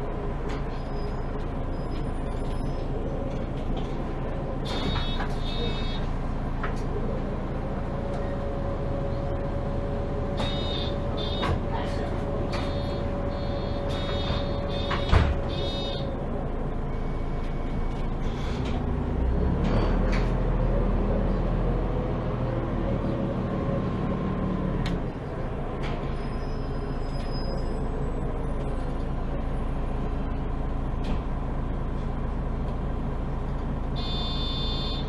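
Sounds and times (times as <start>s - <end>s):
bus engine drone: 0.0s - 35.0s
short electronic tone: 10.4s - 11.5s, 12.7s - 16.0s, 34.0s - 35.0s.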